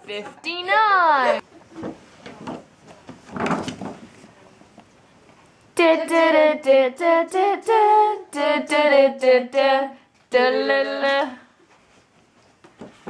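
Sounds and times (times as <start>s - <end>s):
child singing unaccompanied: 5.8s - 11.5s.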